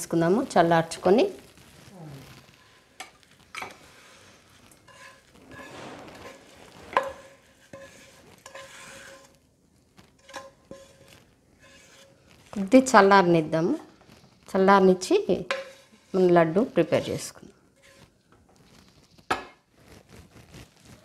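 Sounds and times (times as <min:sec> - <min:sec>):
spatula scraping frying pan: 0:00.1 - 0:21.0
spatula knocking pan and bowl: 0:15.4 - 0:15.9.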